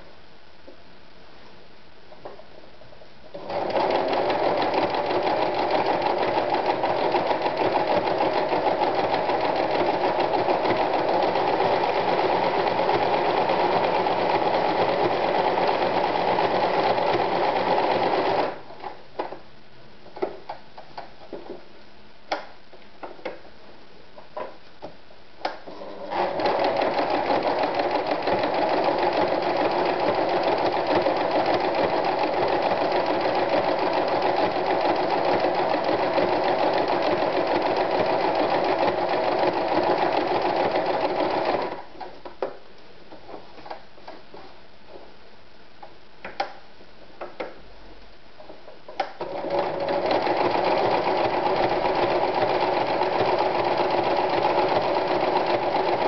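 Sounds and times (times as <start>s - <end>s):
sewing machine stitching: 3.3s - 18.6s, 25.7s - 42.1s, 49.0s - 56.0s.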